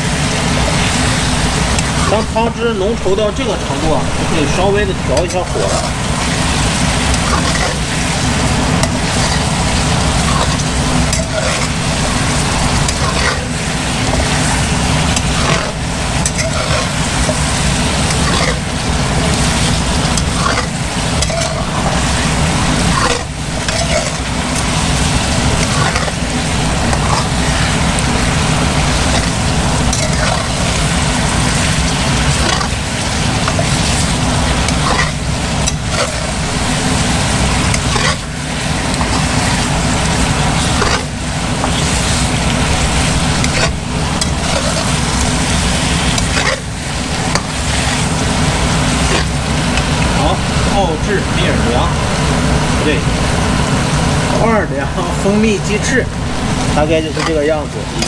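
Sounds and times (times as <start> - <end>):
chicken wings sizzling in sauce: 0.0 - 58.0
metal spatula scraping a pan: 5.1 - 49.9, 56.9 - 58.0.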